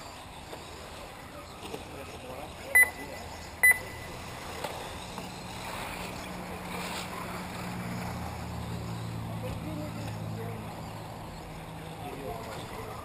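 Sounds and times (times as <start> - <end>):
outdoor noise: 0.0 - 13.0
short electronic beep: 2.8 - 3.0, 3.6 - 4.2.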